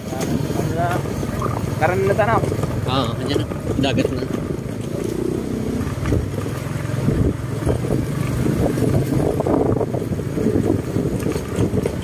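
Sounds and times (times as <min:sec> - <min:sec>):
motorcycle engine running: 0:00.0 - 0:12.0
road and wind rumble: 0:00.0 - 0:12.0.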